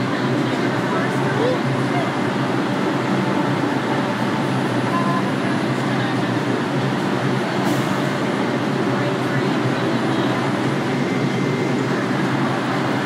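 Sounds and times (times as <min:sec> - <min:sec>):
people's voices: 0:00.0 - 0:13.0
train rumbling at platform: 0:00.0 - 0:13.0.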